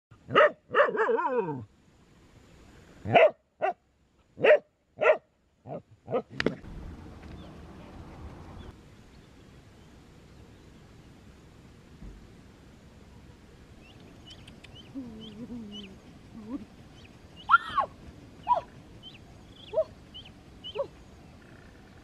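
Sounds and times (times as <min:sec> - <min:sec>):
faint outdoor background noise: 0:00.1 - 0:22.0
dog barking: 0:00.3 - 0:01.6, 0:03.1 - 0:03.8, 0:04.4 - 0:06.3.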